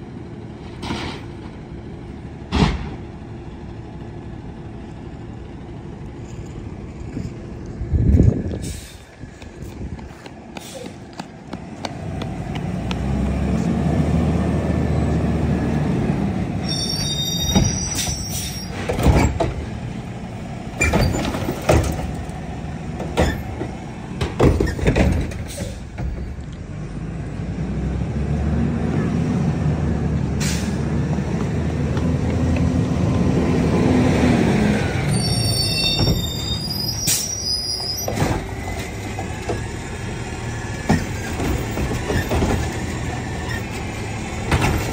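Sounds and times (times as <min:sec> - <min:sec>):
high squeals: 0:16.6 - 0:18.8, 0:35.1 - 0:38.2.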